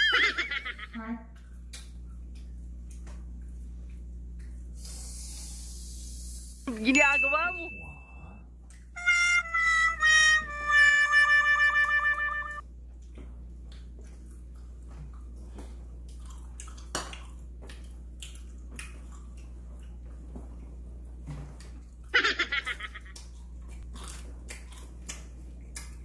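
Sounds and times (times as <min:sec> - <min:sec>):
steady low hum: 0:00.0 - 0:26.0
music: 0:09.0 - 0:12.6
people eating crunchy food: 0:12.9 - 0:22.1, 0:23.1 - 0:26.0.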